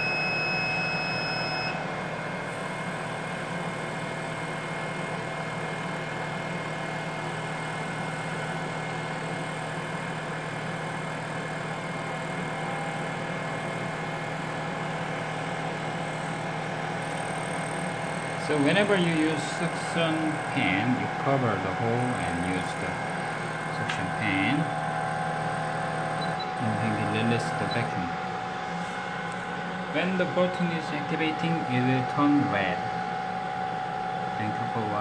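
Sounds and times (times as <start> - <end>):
high electronic beep: 0.0 - 1.8, 26.2 - 26.5
rework station humming: 0.0 - 35.0.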